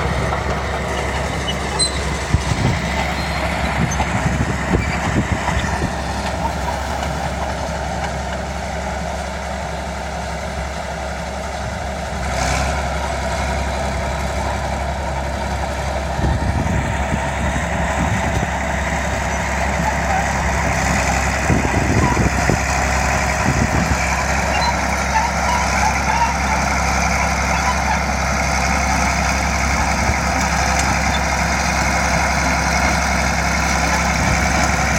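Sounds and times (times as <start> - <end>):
blade pushing soil: 0.0 - 8.5
bulldozer engine running: 0.0 - 34.9.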